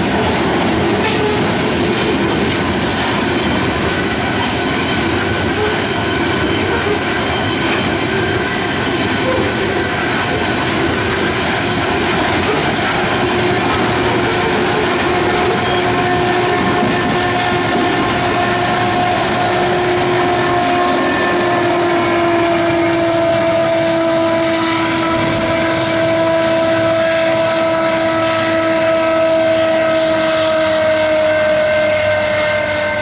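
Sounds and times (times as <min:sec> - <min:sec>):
freight train rolling: 0:00.0 - 0:33.0
train wheels squealing: 0:01.0 - 0:24.1.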